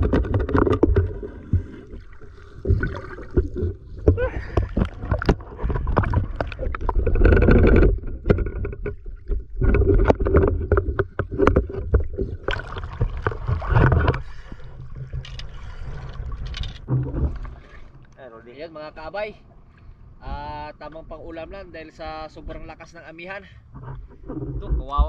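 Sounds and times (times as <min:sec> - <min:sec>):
sharp knocks and clicks: 0:00.0 - 0:01.8, 0:03.3 - 0:14.2
seawater splashing and gurgling: 0:00.0 - 0:18.2.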